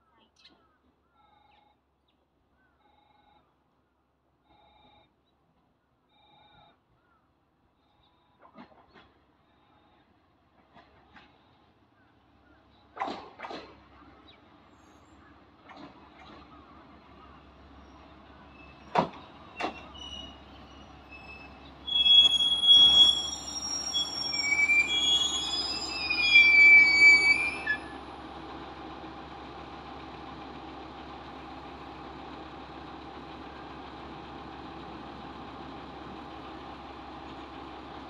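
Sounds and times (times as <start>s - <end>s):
diesel engine idling: 16.5s - 38.0s
brake and wheel squeal: 17.3s - 28.3s.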